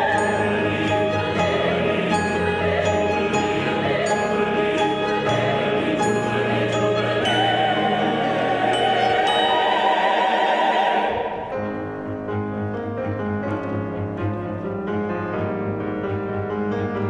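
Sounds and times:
string quartet: 0:00.0 - 0:11.5
choir singing: 0:00.0 - 0:11.9
piano: 0:00.0 - 0:17.0.

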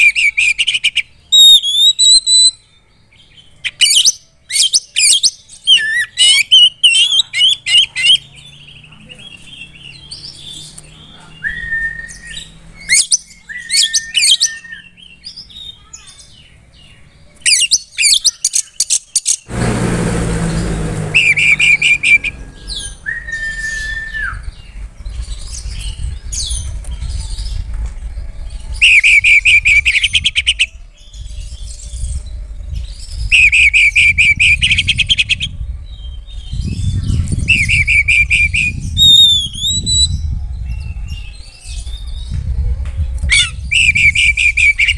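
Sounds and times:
bird singing whistles and trills: 0:00.0 - 0:19.5, 0:21.2 - 0:44.9
low rumbling noise: 0:19.5 - 0:44.9.

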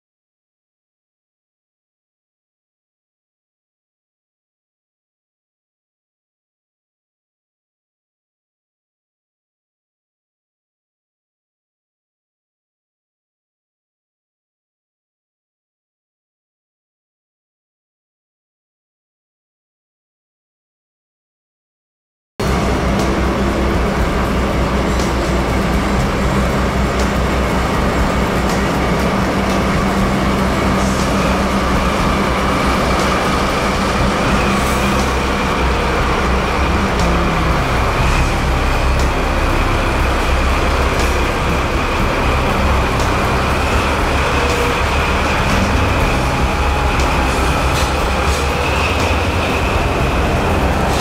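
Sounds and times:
diesel locomotive engine drone: 0:22.4 - 0:51.0
high whine: 0:22.4 - 0:51.0.

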